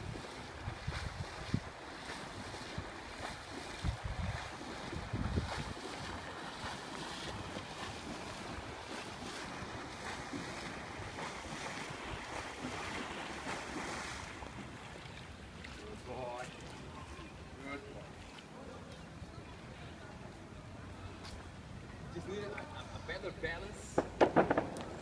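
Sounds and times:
wind buffeting microphone: 0.0s - 14.8s
swimmer splashing water: 0.0s - 22.8s.

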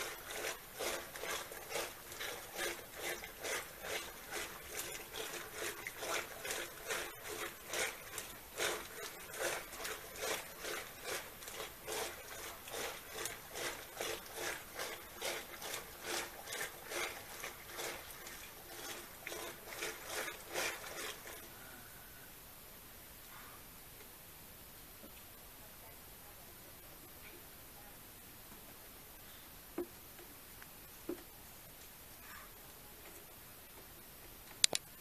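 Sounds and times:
curd churning with rhythmic sloshing: 0.0s - 22.0s.

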